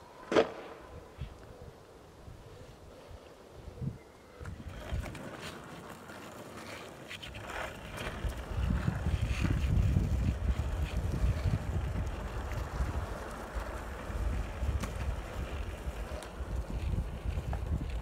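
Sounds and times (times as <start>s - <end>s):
longboard wheels rolling on asphalt: 4.2s - 18.0s
wind buffeting microphone: 7.4s - 18.0s.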